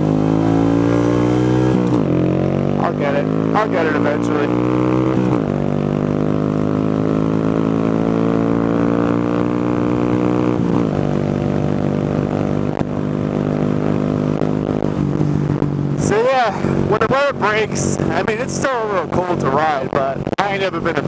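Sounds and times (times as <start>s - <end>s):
motorcycle engine running: 0.0s - 21.0s.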